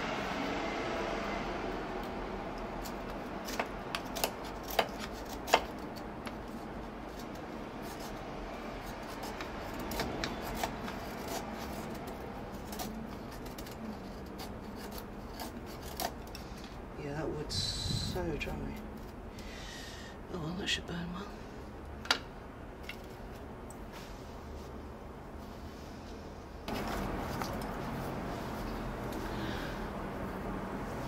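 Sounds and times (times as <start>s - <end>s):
knife scraping wood: 2.8s - 16.8s, 18.4s - 19.3s, 26.7s - 29.9s.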